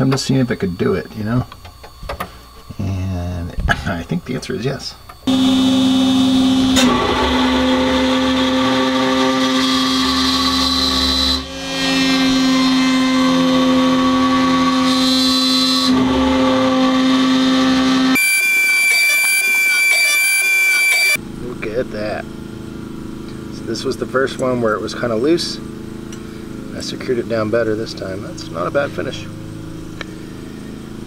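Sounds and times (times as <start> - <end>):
steady high whine: 0.0 - 31.0
router cutting metal: 5.3 - 21.2.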